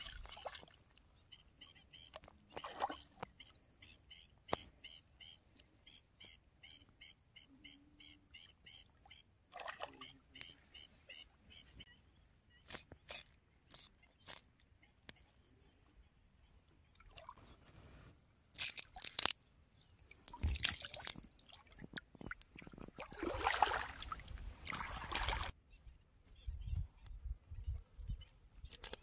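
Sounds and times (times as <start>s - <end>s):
water splashing and sloshing: 0.0s - 1.1s, 2.1s - 3.4s, 9.5s - 10.1s, 18.6s - 25.6s.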